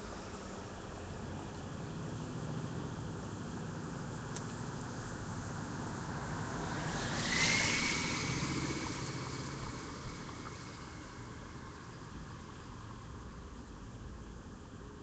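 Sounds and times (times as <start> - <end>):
low rumble of traffic: 0.0 - 15.0
tyres hissing on wet road: 4.6 - 12.2
thin rising whine: 6.0 - 11.5.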